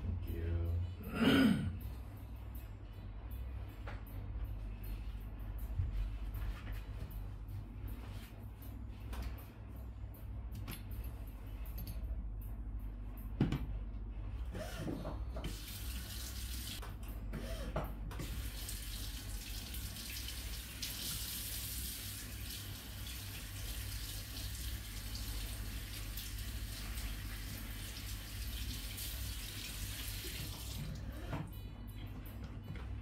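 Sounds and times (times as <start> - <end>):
tap water running into basin: 15.5 - 16.8, 18.2 - 31.0.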